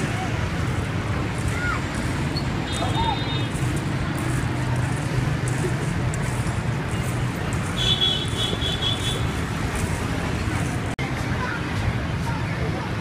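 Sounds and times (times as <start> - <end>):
road traffic rumble: 0.0 - 13.0
vehicle horn beeping: 7.8 - 9.4.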